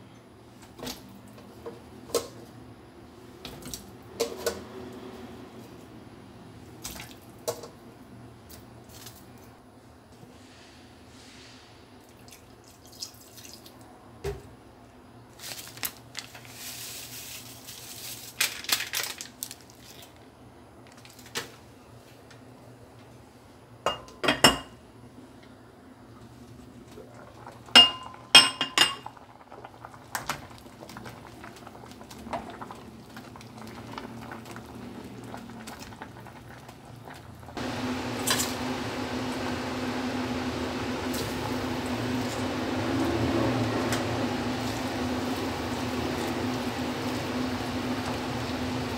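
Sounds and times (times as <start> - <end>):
steady hiss with low hum: 0.0 - 48.9
pot and glass lid clinking: 27.8 - 29.1.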